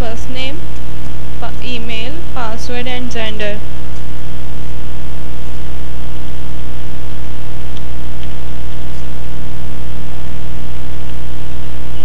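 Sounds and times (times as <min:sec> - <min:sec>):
electrical mains hum: 0:00.0 - 0:12.0
microphone hiss: 0:00.0 - 0:12.0.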